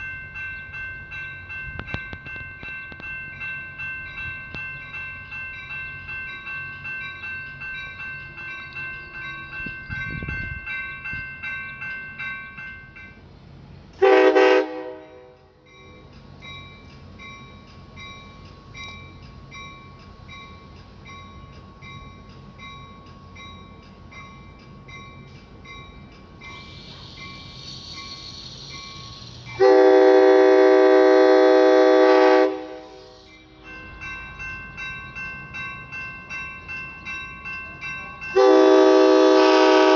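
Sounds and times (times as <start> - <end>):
grade crossing bells ringing: 0.0 - 39.9
train air horn blasts: 14.0 - 15.4, 29.6 - 33.7, 38.4 - 39.9.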